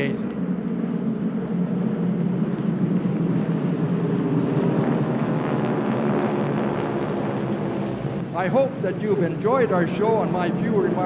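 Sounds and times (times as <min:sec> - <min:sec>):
radial aircraft engines droning: 0:00.0 - 0:11.0.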